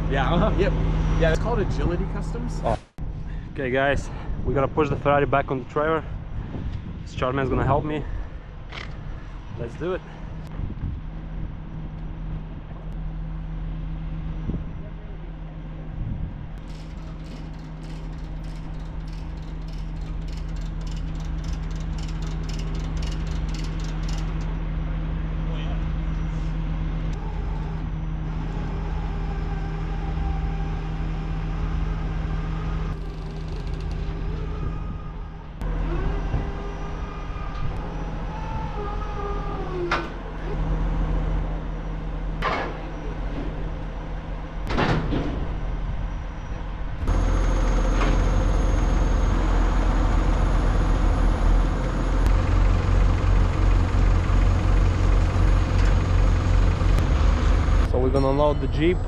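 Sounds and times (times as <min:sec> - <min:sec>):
truck diesel engine idling: 0:47.1 - 0:59.0.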